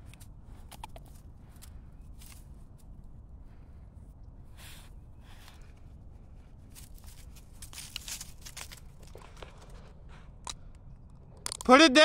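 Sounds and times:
low steady rumble: 0.0s - 11.5s
dog walking over dry leaves: 6.7s - 9.9s.

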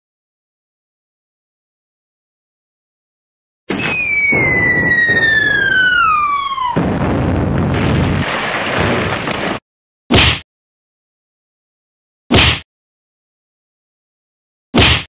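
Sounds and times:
incoming missile whistle: 3.7s - 7.4s
rumbling explosion: 3.7s - 9.6s.

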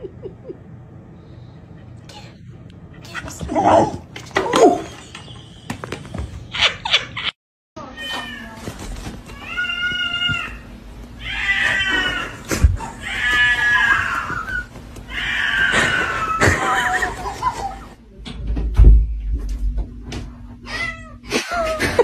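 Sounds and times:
cat yowling: 11.2s - 16.6s.

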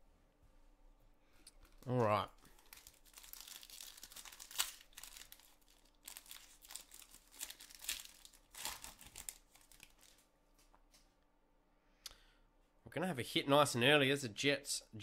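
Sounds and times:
foil wrapper tearing and crinkling: 1.8s - 10.2s.

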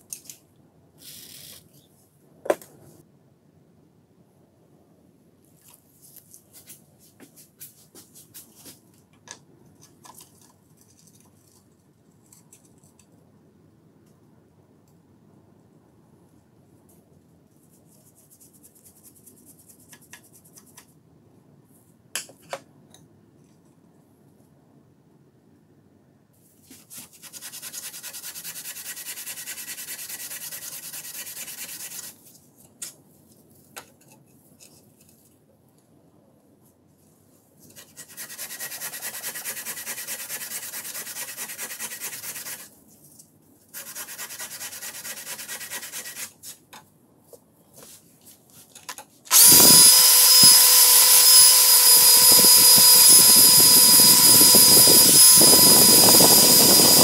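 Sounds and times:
drill wire brush whining: 49.3s - 57.0s.

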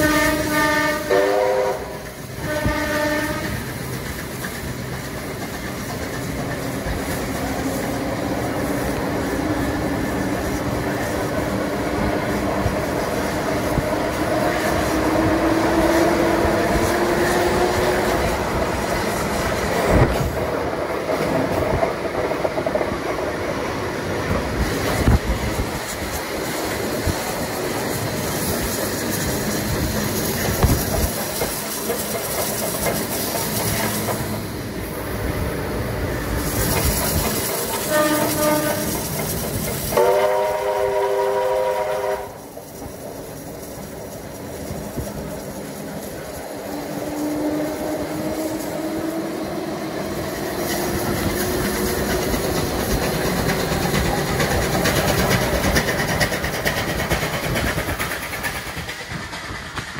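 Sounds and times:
train wheels clacking: 0.0s - 59.9s
train signal blasts: 37.6s - 39.2s, 39.9s - 42.5s.

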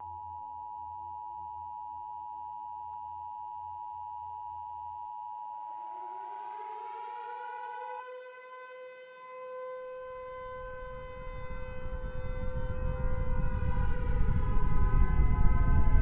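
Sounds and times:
air-raid siren wailing: 5.7s - 16.0s
low rumble: 10.3s - 16.0s.

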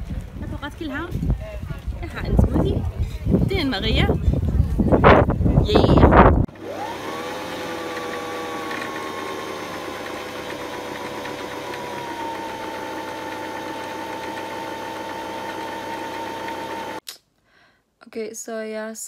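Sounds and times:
sewing machine motor whine: 6.5s - 17.0s.

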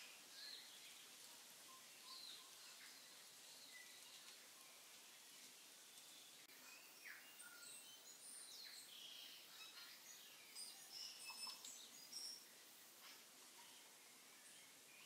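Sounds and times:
low background hiss: 0.0s - 15.0s
bird chirps and whistled calls: 6.5s - 13.2s.

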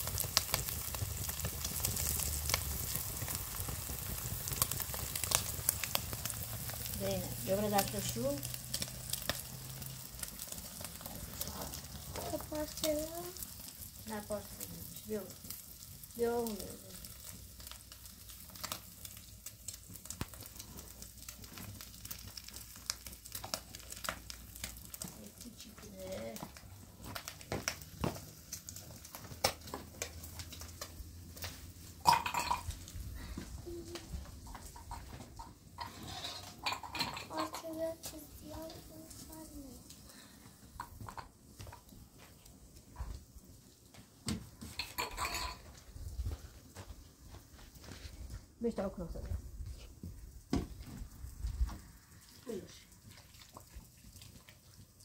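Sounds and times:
food sizzling in a pan: 0.0s - 48.0s, 48.7s - 55.0s
fire popping and crackling: 0.0s - 55.0s
metal cup and bowl clinking: 32.0s - 32.7s, 35.8s - 37.7s, 44.7s - 45.6s.

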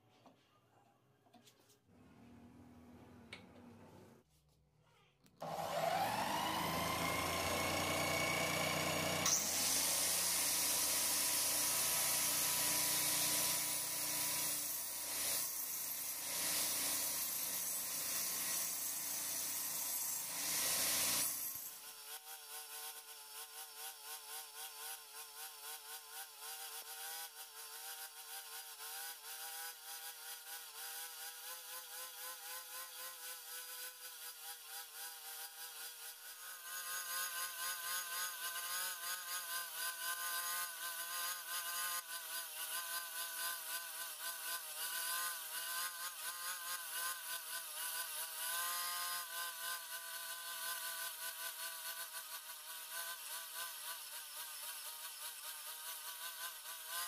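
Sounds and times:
wood lathe whining: 5.4s - 21.7s
angle grinder cutting wood: 5.4s - 57.0s.

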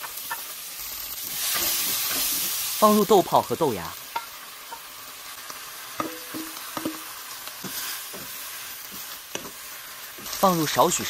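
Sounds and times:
vegetables sizzling in a wok: 0.0s - 11.0s
light knocks against wok: 6.0s - 7.1s.

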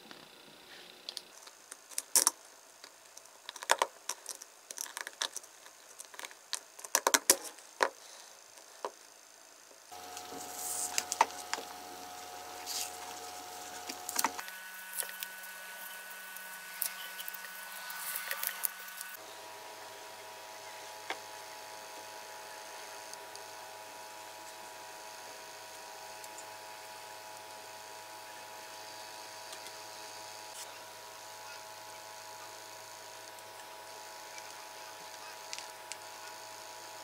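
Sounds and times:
electrical tape peeling crackles: 1.0s - 7.6s, 9.9s - 19.2s
steady hum: 8.0s - 37.0s.

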